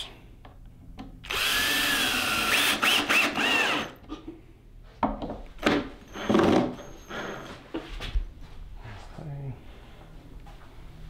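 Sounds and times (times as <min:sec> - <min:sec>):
cordless drill whining: 0:01.3 - 0:04.0.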